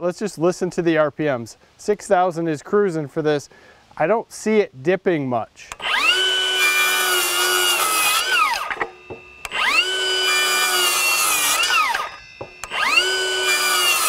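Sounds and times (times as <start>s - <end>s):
circular saw cutting wood: 5.7s - 14.0s.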